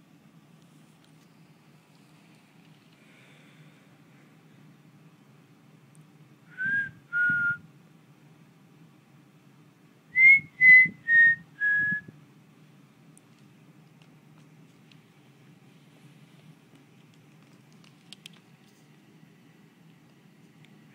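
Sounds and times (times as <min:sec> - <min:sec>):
person whistling short notes: 0:06.5 - 0:07.6, 0:10.2 - 0:12.1.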